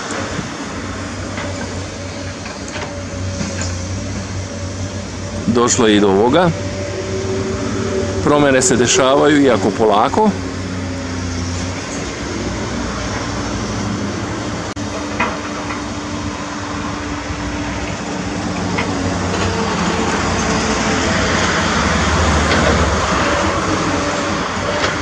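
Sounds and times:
excavator diesel engine running: 0.0 - 25.0.

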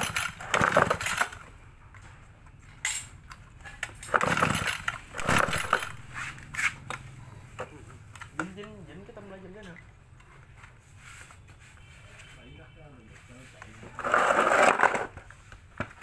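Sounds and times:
scraping and clattering of parts: 0.0 - 8.4, 13.2 - 16.0.

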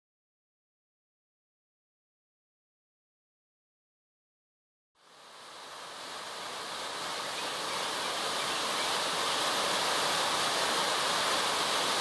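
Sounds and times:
waterfall rushing: 5.0 - 12.0.

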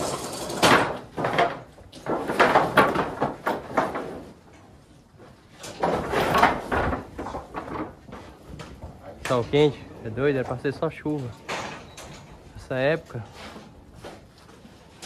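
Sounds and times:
metal cattle gates clattering: 9.2 - 12.6.

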